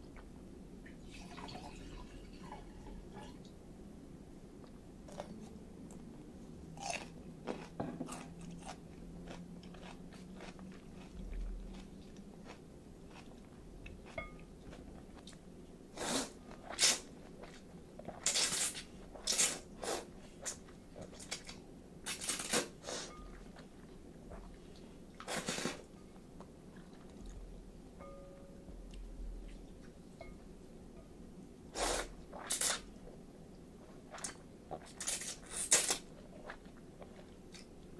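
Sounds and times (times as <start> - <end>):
chewing: 6.8 - 15.4
slurping noodles: 16.0 - 17.0, 25.2 - 25.9.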